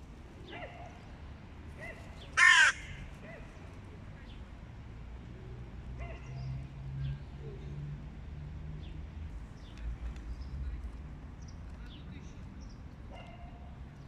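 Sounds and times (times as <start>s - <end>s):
faint bird calls: 2.2s - 3.1s.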